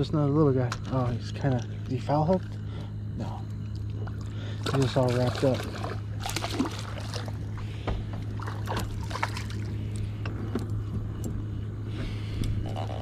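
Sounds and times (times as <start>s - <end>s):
steady low hum: 0.0s - 13.0s
fish splashing at water surface: 3.9s - 10.1s.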